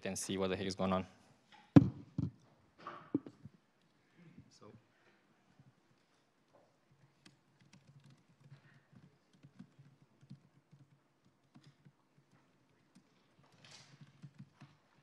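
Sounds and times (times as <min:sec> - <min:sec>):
laptop keystrokes: 0:07.2 - 0:14.8.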